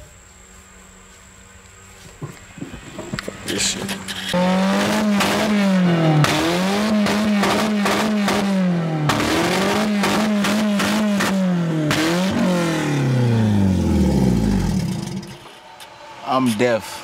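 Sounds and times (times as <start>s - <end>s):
car engine revving: 2.6s - 15.5s.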